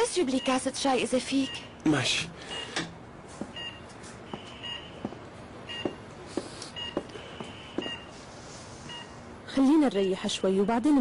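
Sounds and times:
patient monitor beeping: 0.0 - 11.0
soft footsteps on floor: 3.3 - 8.0.

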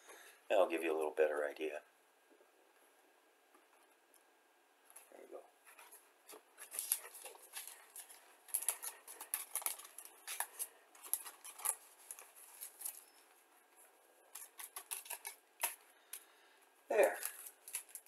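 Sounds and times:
paper rustling and crinkling: 5.6 - 15.8, 16.9 - 18.0.

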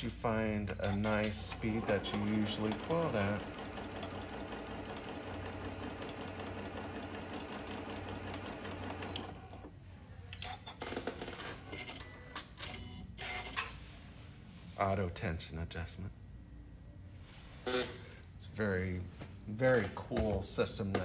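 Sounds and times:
sewing machine running: 1.2 - 9.7.

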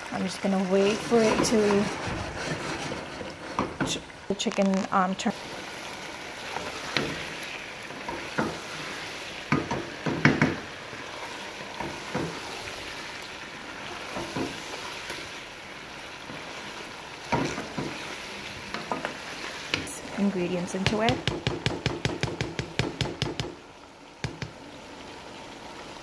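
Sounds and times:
chicken sizzling in oil: 0.0 - 4.4, 5.0 - 26.0
wooden spoon scraping a pot: 0.8 - 9.7, 16.2 - 20.4.

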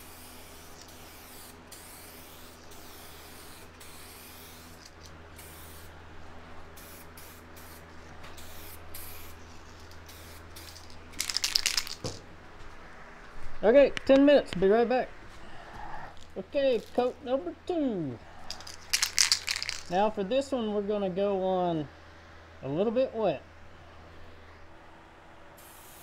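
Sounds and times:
aerosol spray hissing: 0.0 - 6.0, 6.8 - 12.2, 25.6 - 26.0.

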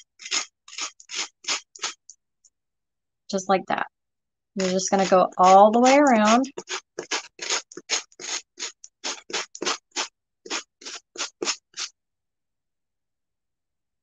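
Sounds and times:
sanding block scraping tile: 0.0 - 2.1, 4.6 - 11.9.

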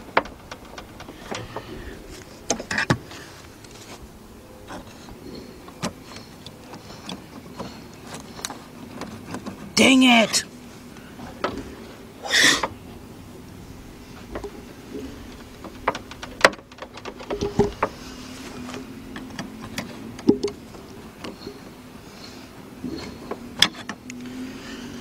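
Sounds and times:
tools clicking and knocking: 0.0 - 1.7.

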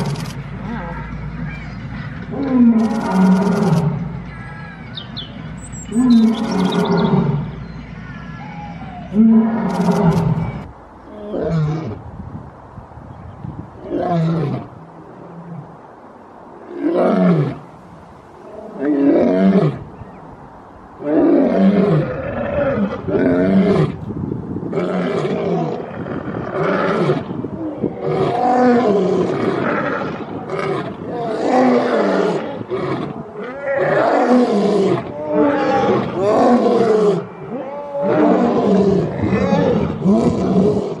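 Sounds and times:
lion roaring: 2.3 - 4.0, 5.9 - 7.4, 8.4 - 12.0, 24.7 - 41.0.

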